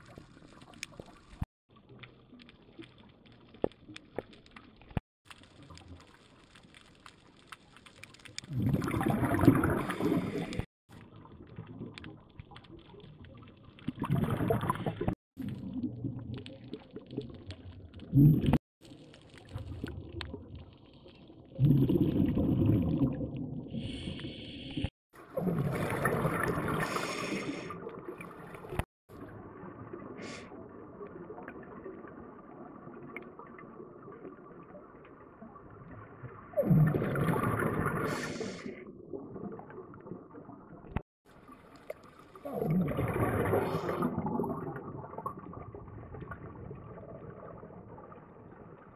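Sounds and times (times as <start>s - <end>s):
diver's breath bubbling: 8.5s - 10.7s, 21.6s - 28.9s, 42.4s - 47.9s.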